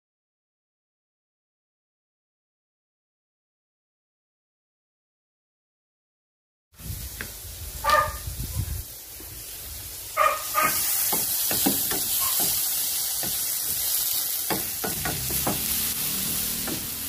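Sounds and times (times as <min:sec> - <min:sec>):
vegetables sizzling in oil: 0:06.8 - 0:17.0
dog barking: 0:07.8 - 0:08.3, 0:10.2 - 0:10.9, 0:12.2 - 0:12.6
wooden spatula scraping wok: 0:10.5 - 0:14.0.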